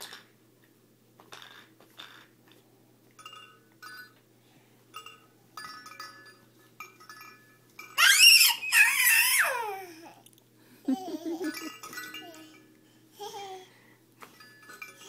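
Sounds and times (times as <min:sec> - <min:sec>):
toy tinkling chimes: 0:03.2 - 0:04.2, 0:05.0 - 0:09.3, 0:11.1 - 0:12.9, 0:14.3 - 0:15.0
baby squealing: 0:08.0 - 0:09.9.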